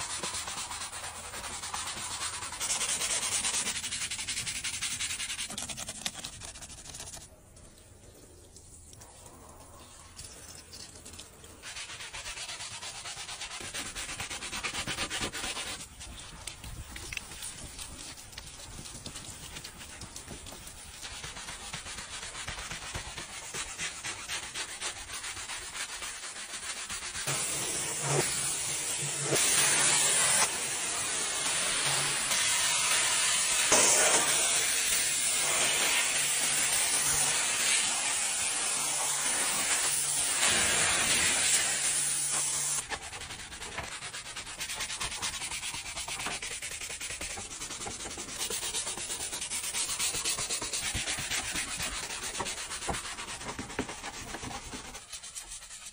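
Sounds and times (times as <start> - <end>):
brush scrubbing plastic panel: 0.0 - 7.3, 9.2 - 55.9
pressure washer jet hissing: 27.3 - 42.8.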